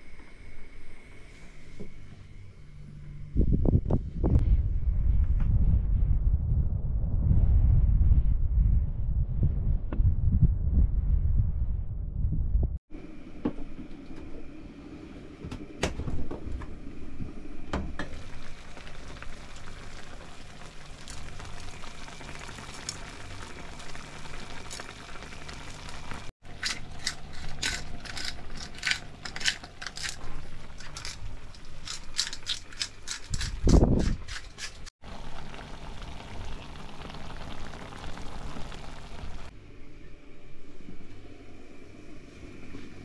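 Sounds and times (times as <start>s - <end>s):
pan of food simmering: 18.1s - 26.3s, 35.0s - 39.5s
pepper mill grinding: 26.5s - 34.9s.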